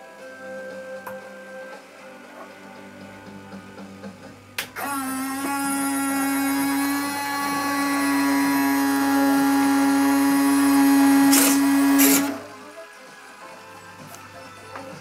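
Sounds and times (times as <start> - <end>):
electric motor running: 4.7 - 12.7.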